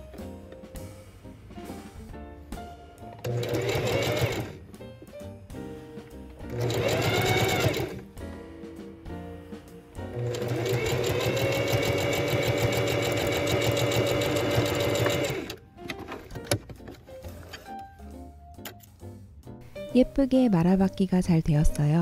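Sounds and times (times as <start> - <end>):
sewing machine stitching: 3.2 - 4.6, 6.4 - 8.1, 10.1 - 16.3.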